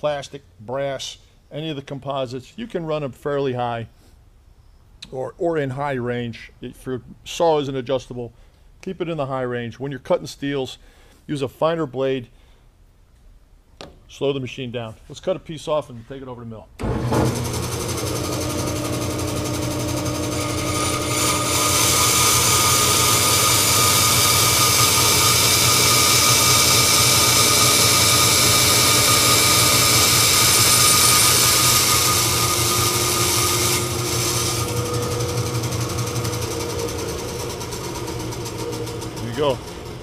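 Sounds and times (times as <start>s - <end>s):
bandsaw motor hum: 16.8s - 40.0s.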